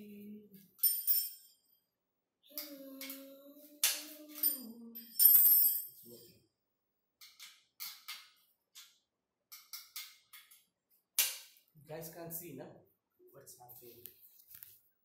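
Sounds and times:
spanners clinking on metal frame: 0.8 - 1.6, 4.0 - 6.2
metallic jangle: 0.8 - 1.8, 4.2 - 6.2.

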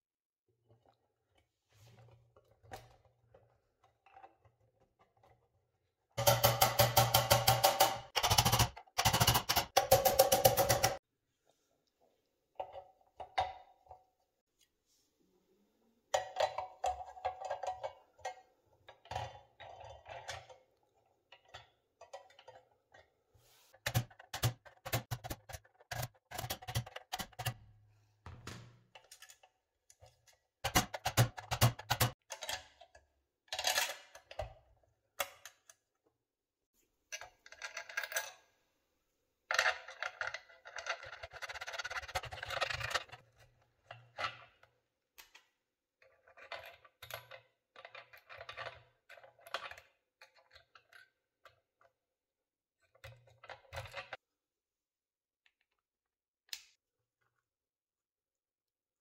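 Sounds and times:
small hard parts clicking: 6.2 - 11.0, 23.8 - 27.6.

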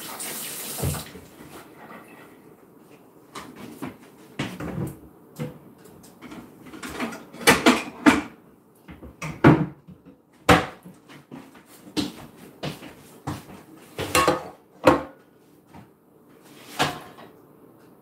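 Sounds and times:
dishes clattering: 6.3 - 8.4, 14.0 - 15.2, 16.7 - 17.3.

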